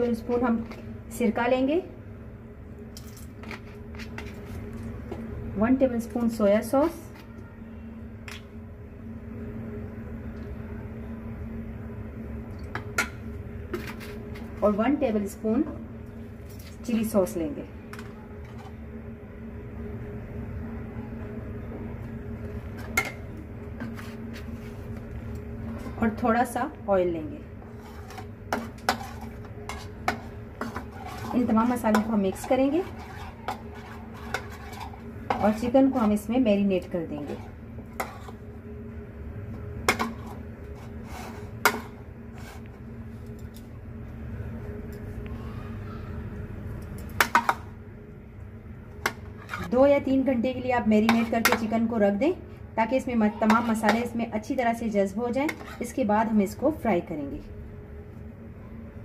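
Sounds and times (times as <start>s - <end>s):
low mechanical hum: 0.0s - 59.0s
soft wet scraping: 27.6s - 36.3s, 37.2s - 38.5s.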